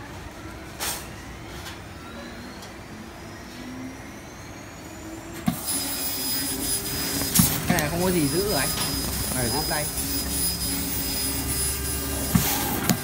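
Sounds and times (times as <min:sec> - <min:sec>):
faint rising whine: 0:00.0 - 0:13.0
laser cutting machine hum: 0:01.3 - 0:13.0
loud hiss of laser cutting metal: 0:05.5 - 0:13.0.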